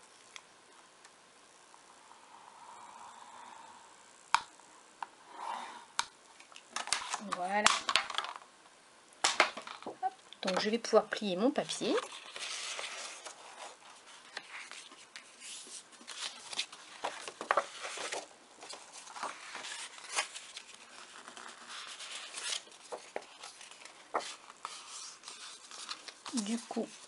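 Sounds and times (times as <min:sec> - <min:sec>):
paper rustling and crackling: 0:11.8 - 0:27.0.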